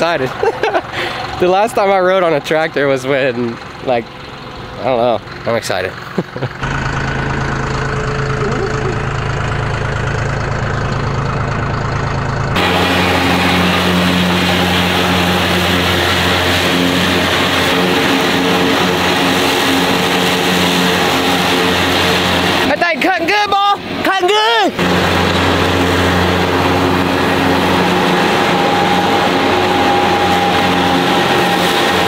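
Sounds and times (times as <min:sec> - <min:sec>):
tractor engine running: 0:00.0 - 0:32.0
rotary cutter mowing grass: 0:06.6 - 0:10.3, 0:12.6 - 0:24.0, 0:24.8 - 0:32.0.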